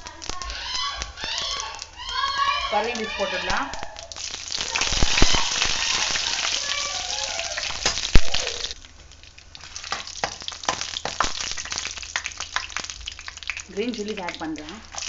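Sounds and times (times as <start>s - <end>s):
leaves crackling in hot oil: 0.0s - 15.0s.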